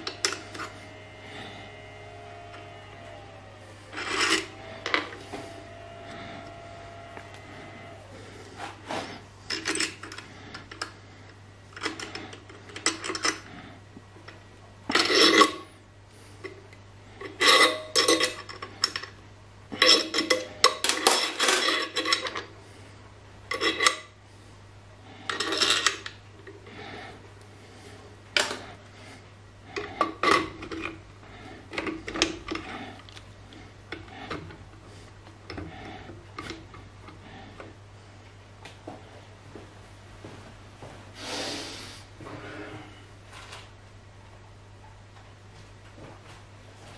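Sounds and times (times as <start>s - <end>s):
steady low hum: 0.0s - 46.9s
metal parts scraping and clinking: 3.0s - 7.1s, 9.4s - 10.9s, 11.8s - 13.5s, 14.9s - 15.7s, 17.2s - 22.5s, 23.5s - 24.1s, 25.2s - 26.1s.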